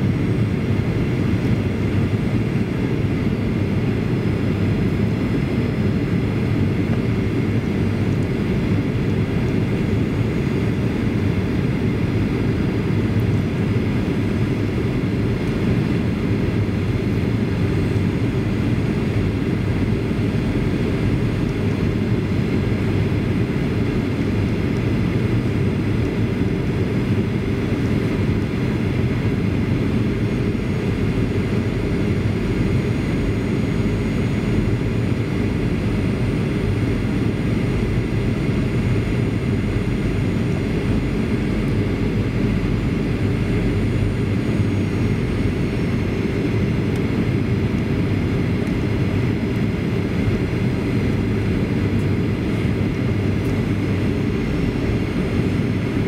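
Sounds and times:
cabin airflow rush: 0:00.0 - 0:56.0
jet engines humming: 0:00.0 - 0:56.0.

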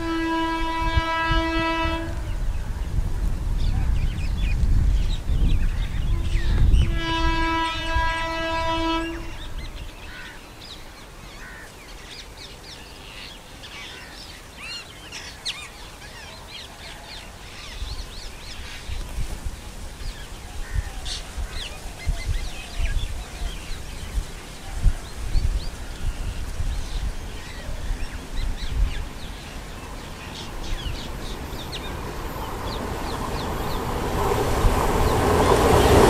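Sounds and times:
train horn blast: 0:00.0 - 0:02.5, 0:06.1 - 0:09.8
train rumble: 0:00.0 - 0:11.4, 0:16.1 - 0:36.0
birds chirping: 0:03.6 - 0:36.0.

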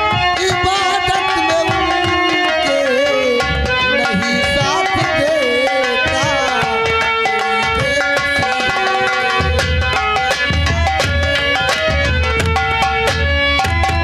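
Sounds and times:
hand drums played briskly: 0:00.0 - 0:14.0
wavering melodic line: 0:00.9 - 0:10.3.

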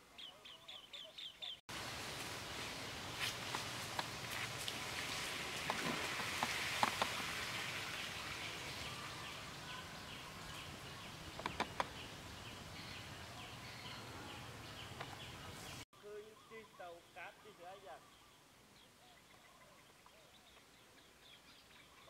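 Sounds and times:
steady outdoor hiss: 0:00.0 - 0:22.0
sharp clicks: 0:11.4 - 0:12.0.

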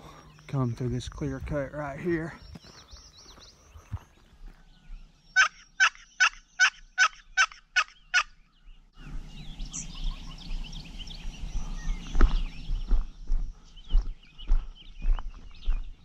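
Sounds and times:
small birds singing: 0:00.0 - 0:16.0
footsteps on gravel: 0:00.4 - 0:05.1, 0:11.2 - 0:16.0
turkey call yelps: 0:05.4 - 0:08.4.

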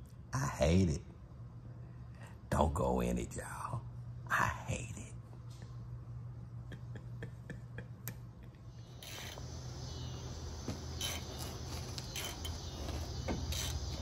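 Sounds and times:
faint insect chirping: 0:08.6 - 0:14.0.

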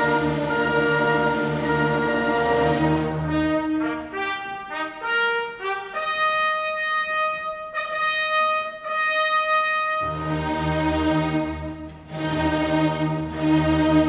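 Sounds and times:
orchestral brass playing: 0:00.0 - 0:14.0.

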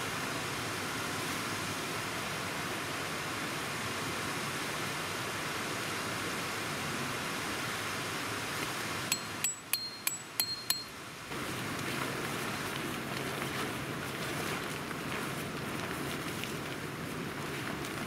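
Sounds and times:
hammer striking metal peg: 0:09.1 - 0:10.9.

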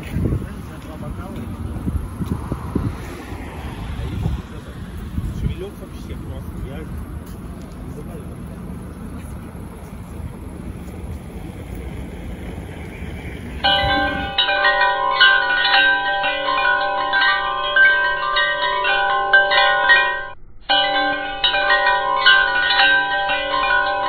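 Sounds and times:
bell-like chiming music: 0:13.6 - 0:24.0.

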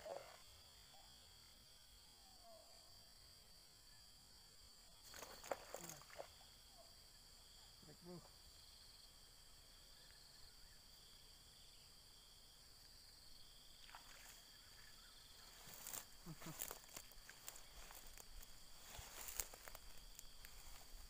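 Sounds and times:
faint rustles: 0:15.4 - 0:21.0.

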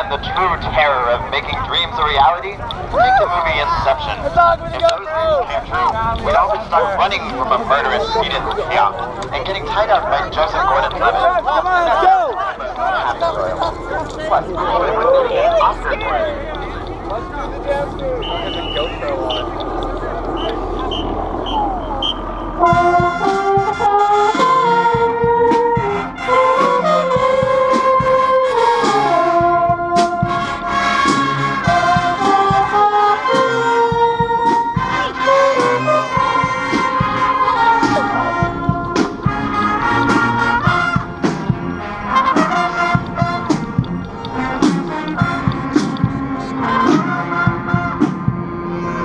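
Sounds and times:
brass melody of trumpets and trombones: 0:00.0 - 0:02.6, 0:03.3 - 0:49.0
marching band drum hits: 0:22.4 - 0:28.2.

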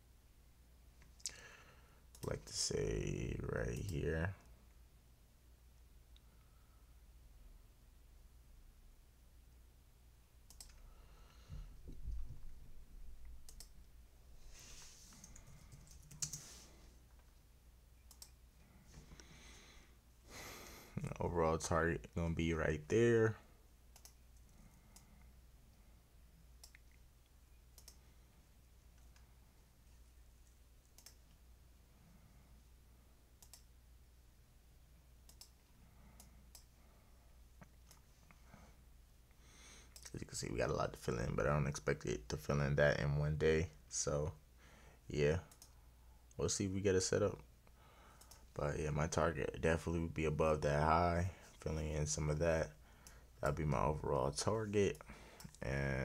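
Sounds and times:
computer mouse clicks: 0:10.5 - 0:10.8, 0:13.2 - 0:13.8, 0:15.1 - 0:16.5, 0:18.0 - 0:18.4, 0:23.9 - 0:25.3, 0:26.6 - 0:27.0, 0:27.8 - 0:28.1, 0:30.8 - 0:31.4, 0:33.4 - 0:33.7, 0:35.3 - 0:36.7, 0:37.6 - 0:38.1, 0:45.5 - 0:45.8, 0:48.2 - 0:48.5.

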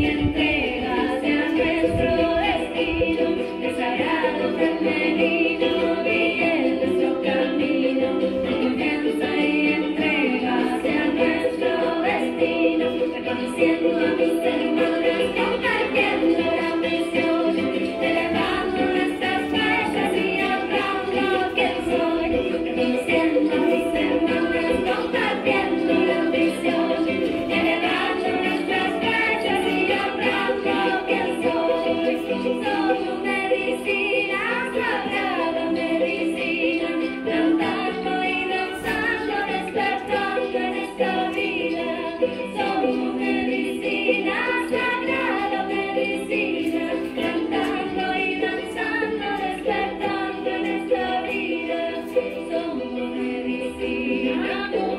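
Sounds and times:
women singing in chorus: 0:00.0 - 0:54.9.

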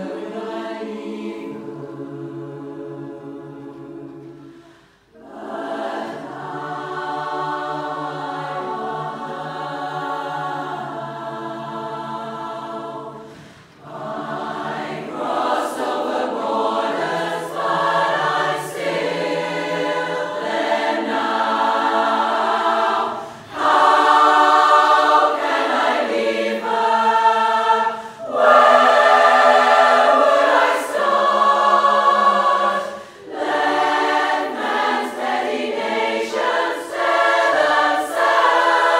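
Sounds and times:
women's chorus singing in harmony: 0:00.0 - 0:38.9.

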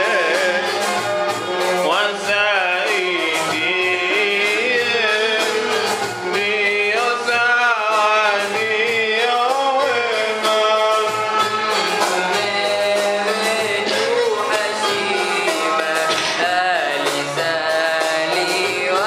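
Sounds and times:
instrumental accompaniment: 0:00.0 - 0:19.0
person singing devotional song: 0:12.0 - 0:19.0.

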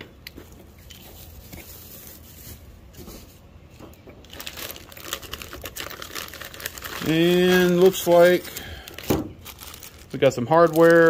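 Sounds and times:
plastic packaging crinkling: 0:04.2 - 0:11.0.

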